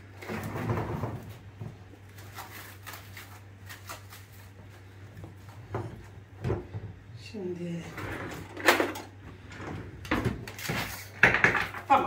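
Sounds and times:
cling film crinkling: 2.0 - 4.8.

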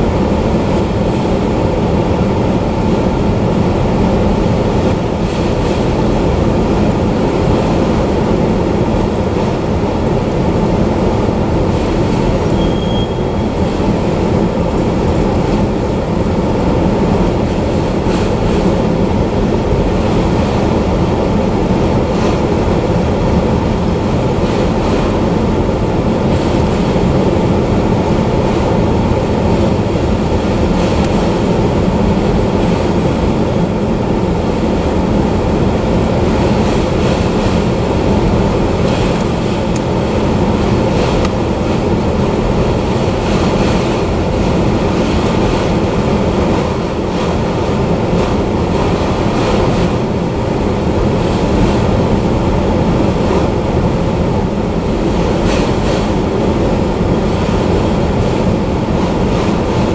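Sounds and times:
train wheels rumbling on rail: 0.0 - 59.9
high wheel squeal: 12.5 - 13.6.

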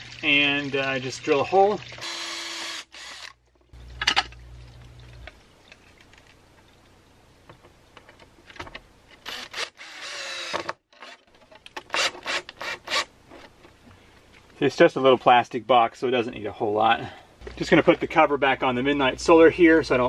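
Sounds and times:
cordless drill drilling plastic: 2.0 - 3.4, 9.2 - 11.2.

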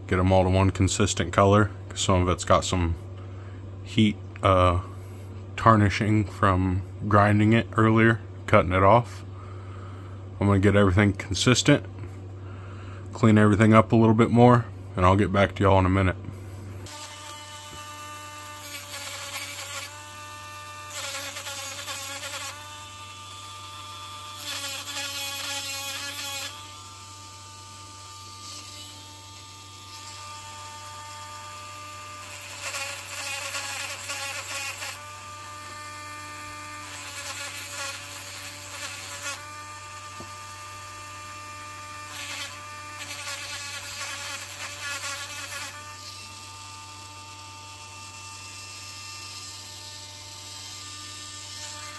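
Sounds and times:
rotary tool high whine: 16.8 - 51.9.

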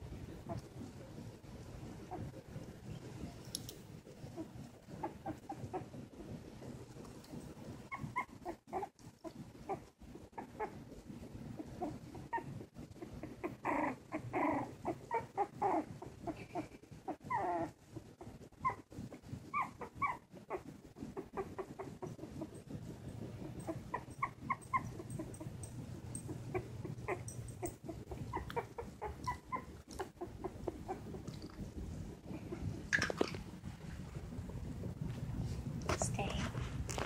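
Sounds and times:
puppies whimpering and squeaking: 4.2 - 6.3, 7.4 - 10.8, 11.5 - 32.8.

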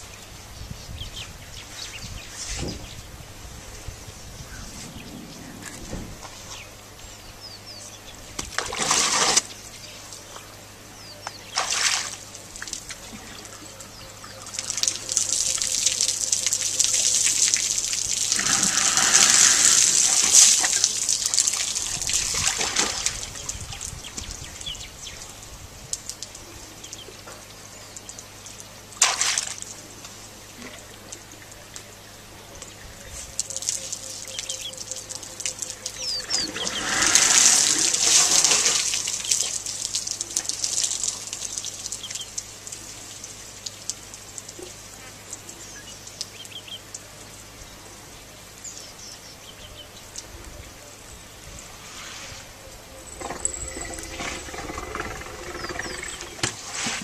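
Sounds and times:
water running and splashing: 11.5 - 13.5, 14.4 - 26.4, 33.3 - 46.4.

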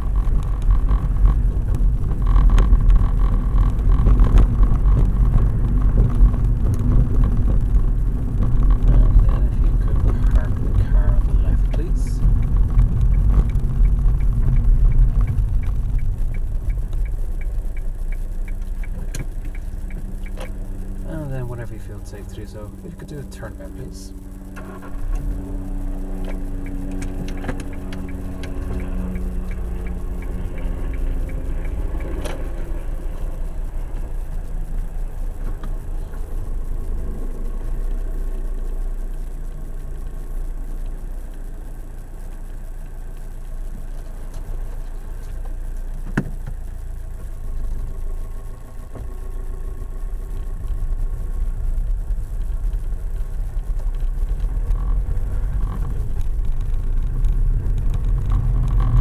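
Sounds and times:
car engine and cabin rumble: 0.0 - 59.0.

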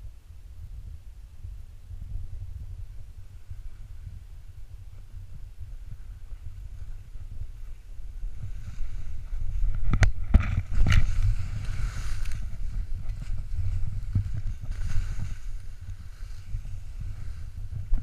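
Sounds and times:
wind rumbling on microphone: 0.0 - 18.0
snow hissing and scraping: 5.8 - 9.7, 10.6 - 18.0.

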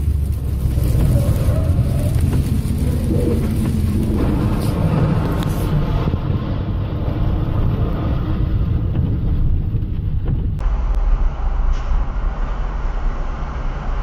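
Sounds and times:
wet road hiss: 0.0 - 6.1
engine and tyre rumble: 0.0 - 14.0.

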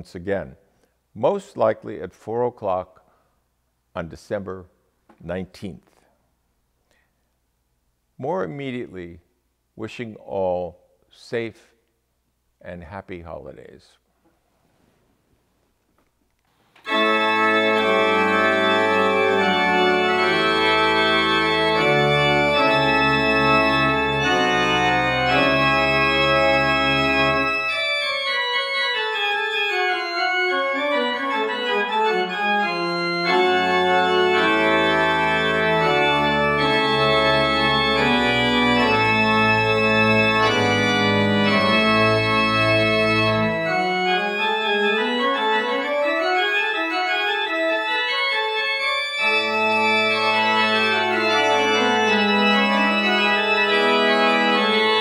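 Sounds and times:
church organ chords: 16.8 - 55.0.

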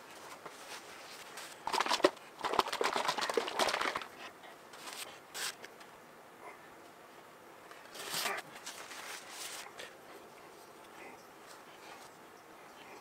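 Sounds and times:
crinkly rustling: 0.0 - 5.6, 7.7 - 12.2.

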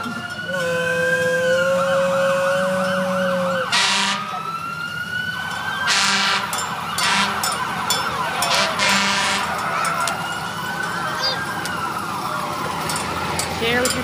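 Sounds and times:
fire engine sirens: 0.0 - 14.0
loud horn blasts: 0.5 - 4.4, 5.9 - 7.6, 8.5 - 9.7.

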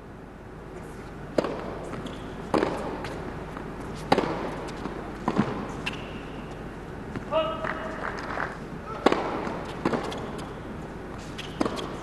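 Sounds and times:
steady arena hum: 0.0 - 12.0
racket hitting tennis ball: 1.3 - 7.3, 8.9 - 12.0.

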